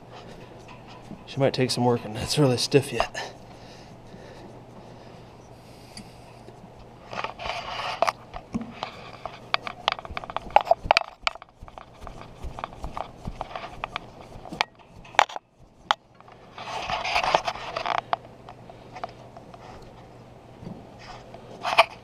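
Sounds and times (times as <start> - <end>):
hands and tool scraping metal: 0.0 - 3.5, 7.1 - 18.1, 21.0 - 22.0
steady low hum: 0.0 - 22.0.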